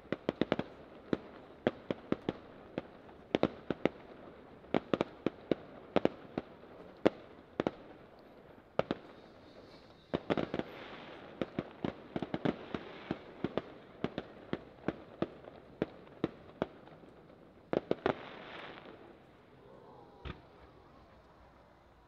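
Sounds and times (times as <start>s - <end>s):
fireworks crackling hiss: 7.8s - 22.0s
fireworks bangs: 20.1s - 21.5s.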